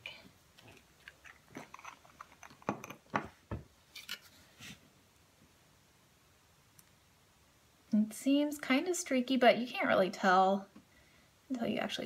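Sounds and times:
glass bottle clicks and knocks: 1.6 - 3.6.

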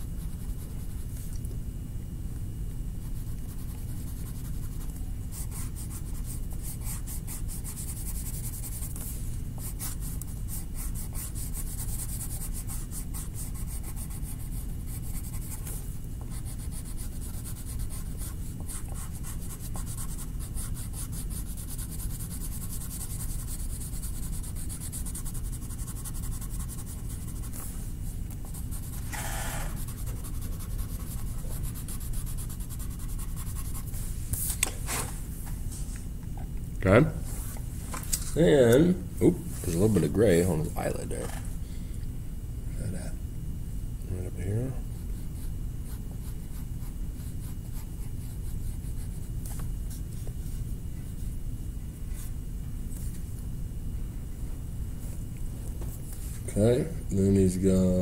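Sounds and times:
pencil rubbing on paper: 0.0 - 1.2, 3.0 - 34.0, 44.9 - 51.3
steady low hum: 0.0 - 58.0.

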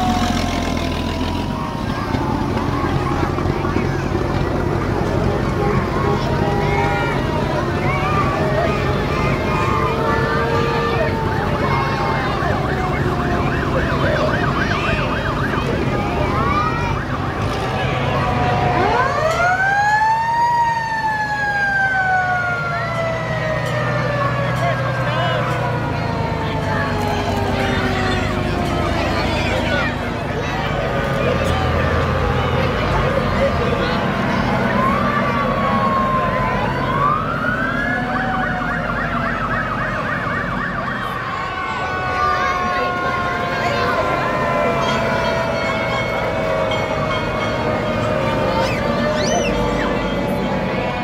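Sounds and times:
fire engine siren winding: 7.3 - 29.0, 34.6 - 50.8.

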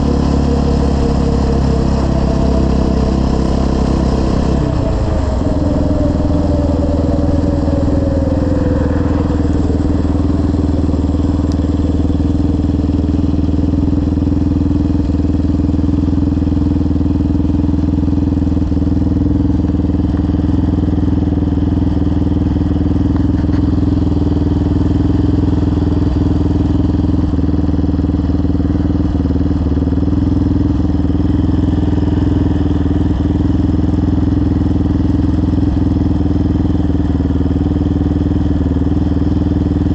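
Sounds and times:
falling tone: 0.0 - 14.9
atv engine running: 0.0 - 39.9.

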